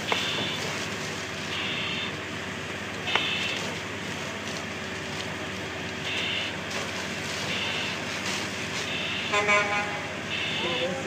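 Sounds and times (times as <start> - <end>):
fire hose spraying water: 0.0 - 9.4
engine hum: 0.0 - 11.0
pitched call or tone: 8.9 - 11.0.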